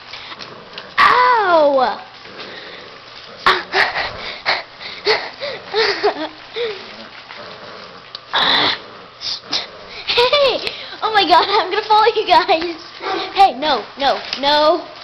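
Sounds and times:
breathy wheezing laughter: 3.5s - 6.8s
rustling handling noise: 10.0s - 15.0s.

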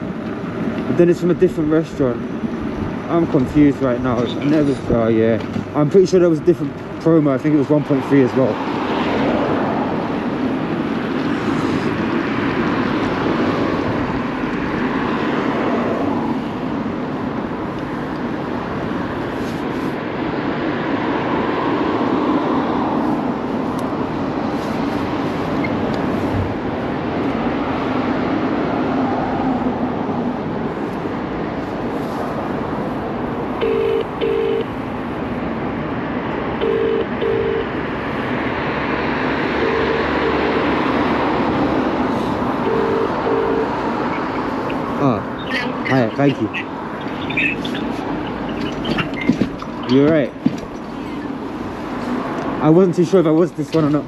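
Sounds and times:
road noise: 0.0s - 54.0s
short electronic beeps: 33.6s - 34.7s, 36.6s - 37.7s, 39.6s - 40.6s, 42.6s - 43.7s.

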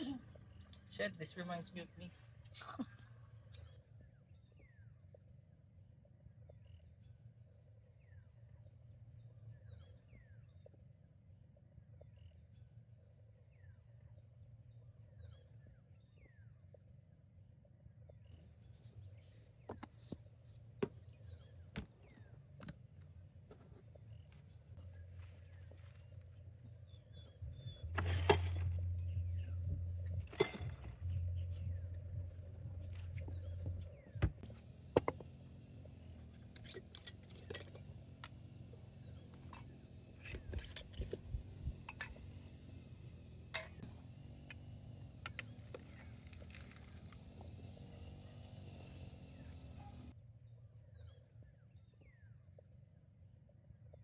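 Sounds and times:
insects trilling: 0.0s - 54.0s
low hum: 24.0s - 50.1s
clicks and knocks of containers: 27.8s - 28.9s, 30.2s - 31.2s, 36.5s - 38.4s, 39.3s - 41.3s.

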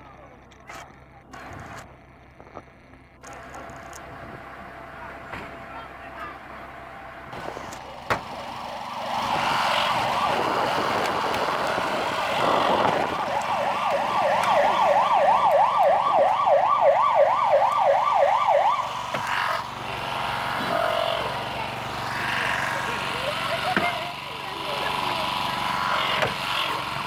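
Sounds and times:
siren yelping: 8.7s - 23.8s.

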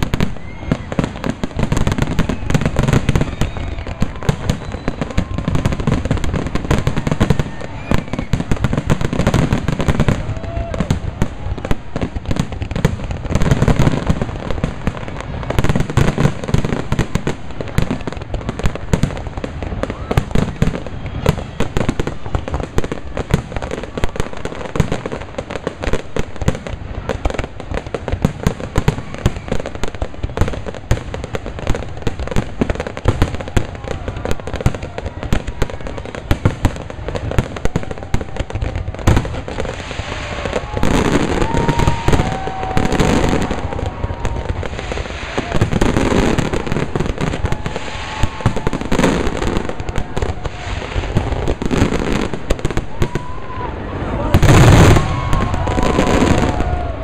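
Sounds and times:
fireworks bangs and pops: 0.0s - 57.0s.

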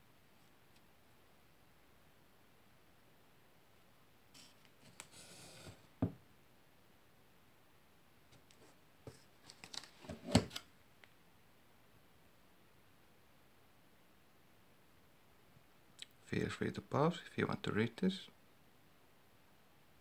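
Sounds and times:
book sliding rustle: 4.4s - 5.9s, 8.4s - 10.6s
book knocking on wooden table: 6.0s - 6.2s.

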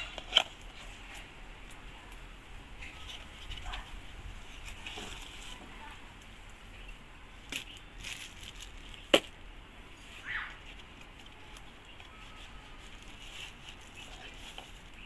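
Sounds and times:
packaging rustling and scraping: 0.0s - 1.3s, 2.8s - 5.8s, 7.5s - 9.3s, 10.6s - 15.0s.

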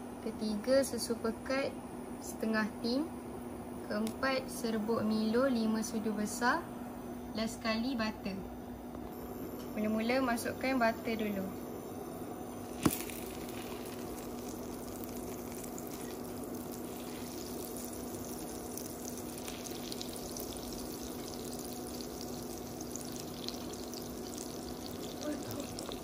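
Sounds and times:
steady low hum: 0.0s - 26.0s
butter sizzling in a frying pan: 12.7s - 26.0s.

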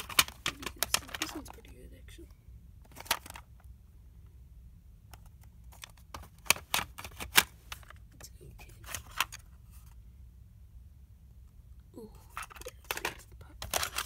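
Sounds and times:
plastic cassette cases clicking: 0.0s - 1.7s, 2.9s - 3.5s, 5.1s - 8.0s, 8.8s - 9.4s, 12.4s - 14.0s.

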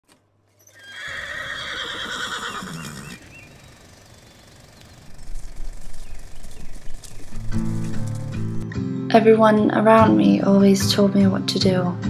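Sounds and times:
horse whinnying: 0.6s - 3.3s.

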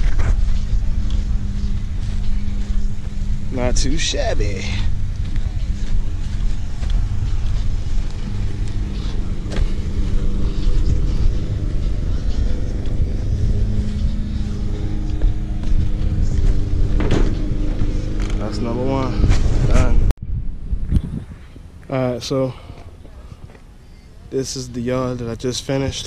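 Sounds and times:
lawn mower engine humming: 0.0s - 19.3s.

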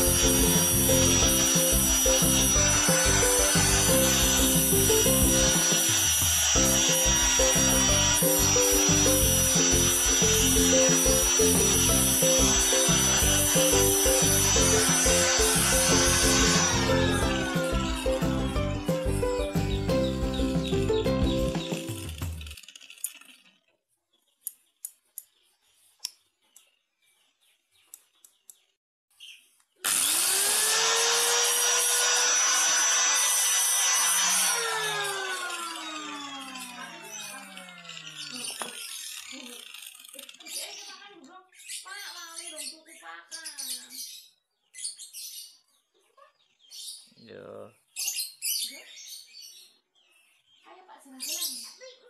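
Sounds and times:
background music: 0.0s - 22.4s
angle grinder grinding steel: 0.0s - 23.2s, 29.8s - 40.7s.

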